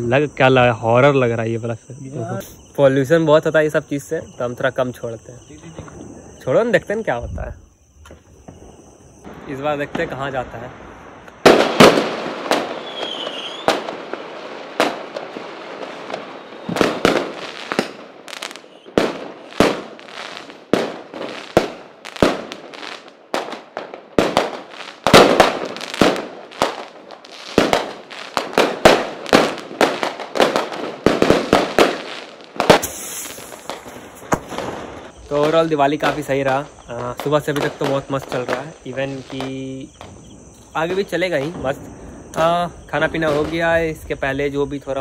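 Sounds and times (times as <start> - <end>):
fireworks bangs and crackle: 0.0 - 45.0
firework whistle: 10.8 - 15.0, 15.8 - 20.6, 31.5 - 35.5.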